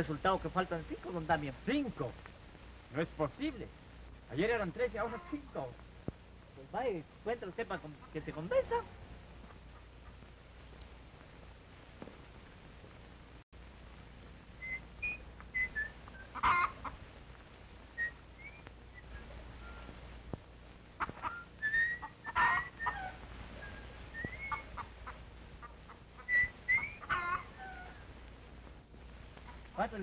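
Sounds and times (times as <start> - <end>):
chickens clucking and squawking: 4.8 - 5.7, 7.8 - 10.5, 15.5 - 17.1, 20.9 - 28.2.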